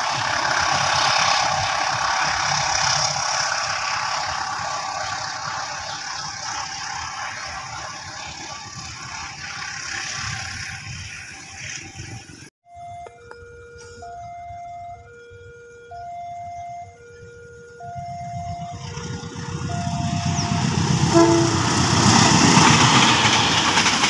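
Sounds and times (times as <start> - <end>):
train wheels rolling on rails: 18.8 - 24.0.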